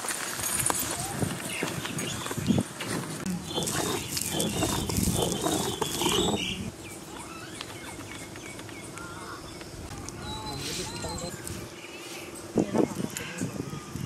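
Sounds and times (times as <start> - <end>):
stone grinding on stone: 3.3 - 6.7.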